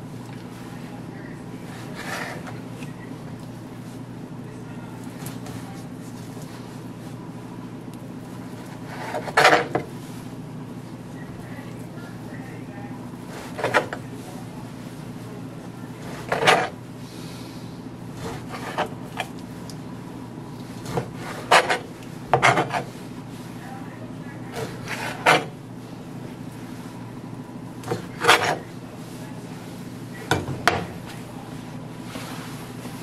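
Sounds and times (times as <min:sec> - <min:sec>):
steady low hum: 0:00.0 - 0:33.0.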